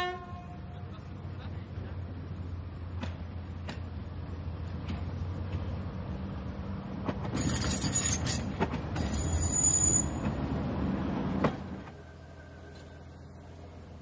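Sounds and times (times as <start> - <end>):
wheels clacking over rail joints: 7.0 - 10.5
wheels squealing on curve: 7.3 - 10.3
diesel engine humming: 10.1 - 14.0.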